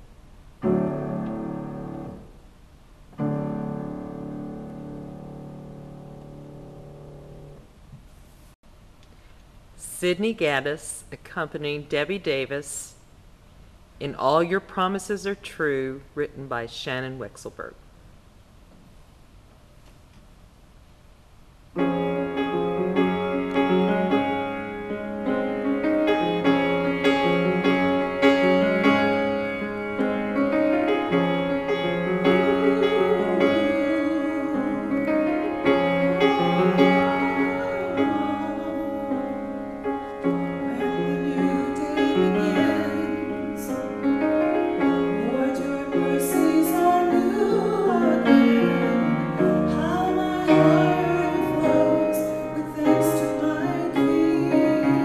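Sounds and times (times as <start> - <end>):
grand piano playing: 0.6 - 2.4, 3.1 - 7.8, 21.8 - 55.0.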